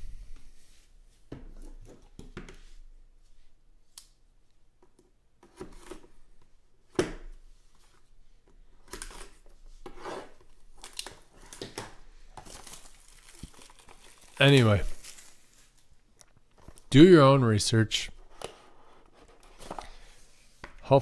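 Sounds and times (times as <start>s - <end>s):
shrink wrap tearing and crinkling: 10.7s - 11.8s, 12.4s - 16.8s.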